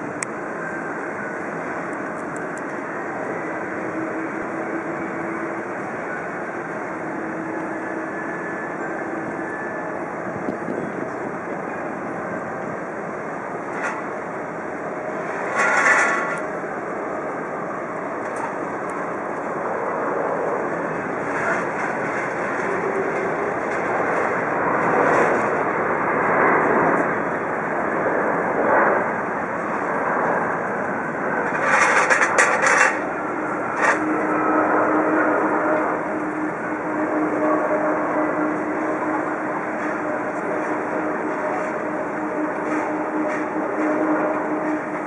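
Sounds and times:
distant jet engines rumbling: 0.0 - 45.0.

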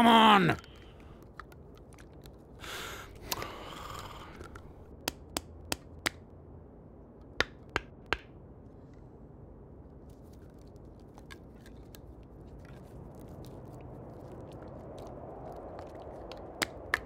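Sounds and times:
strained breath: 2.6 - 4.9.

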